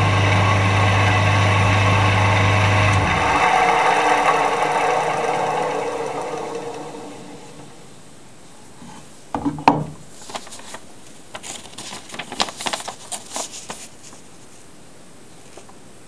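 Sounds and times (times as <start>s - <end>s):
paper rustling and crinkling: 10.1s - 14.7s, 15.4s - 15.8s.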